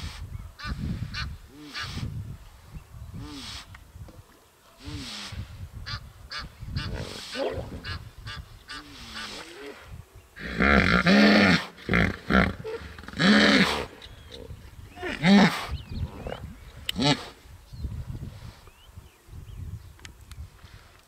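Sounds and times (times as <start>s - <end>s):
hippopotamus wheeze-honk call: 6.3s - 9.6s.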